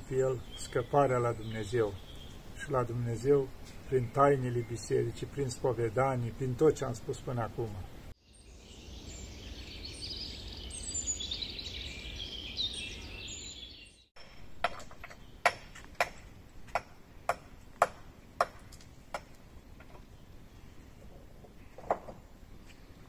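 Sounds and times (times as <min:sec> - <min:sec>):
birds chirping: 0:00.0 - 0:16.2.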